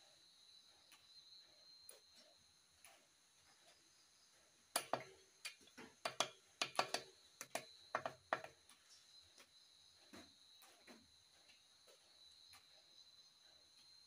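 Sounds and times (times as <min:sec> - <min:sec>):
sharp metallic clicks and knocks: 0:04.7 - 0:08.8.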